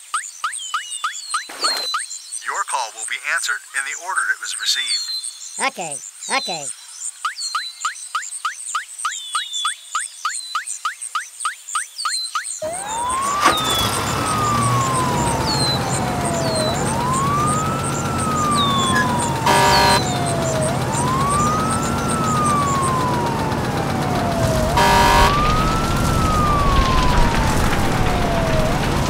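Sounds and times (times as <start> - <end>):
fire engine siren wailing: 12.6 - 29.0
short horn blast: 18.8 - 21.2, 24.6 - 26.7.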